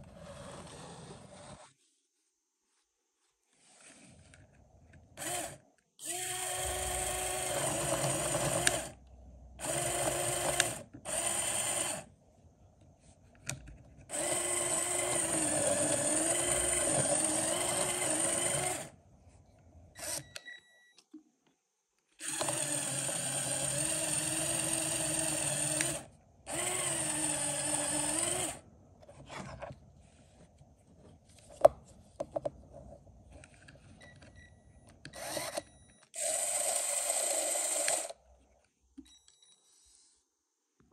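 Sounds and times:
toy motor and gears whirring: 5.2s - 8.9s, 9.6s - 12.1s, 14.1s - 19.0s, 22.2s - 28.6s, 35.2s - 38.2s.

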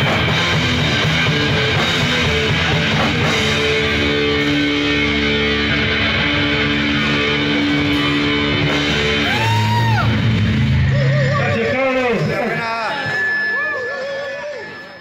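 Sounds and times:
electric guitar ringing chords: 0.0s - 15.0s.

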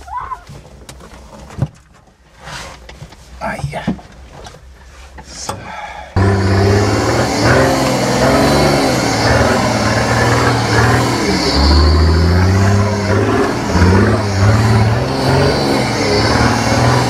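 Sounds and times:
vehicle engine revving: 6.2s - 17.0s.

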